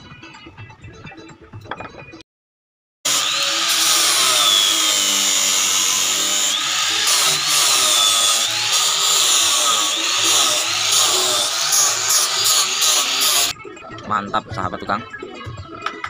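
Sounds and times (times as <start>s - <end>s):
angle grinder whining on wood: 3.1s - 13.5s.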